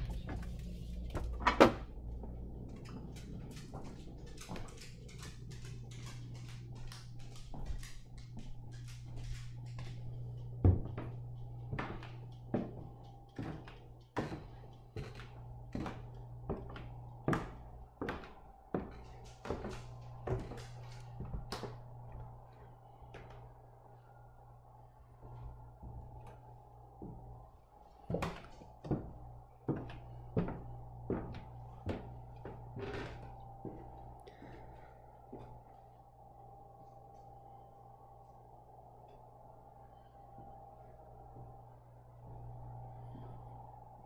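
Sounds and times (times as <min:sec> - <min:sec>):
footsteps on wooden stairs: 0:00.0 - 0:22.4, 0:25.2 - 0:35.6
steady low hum: 0:00.0 - 0:44.0.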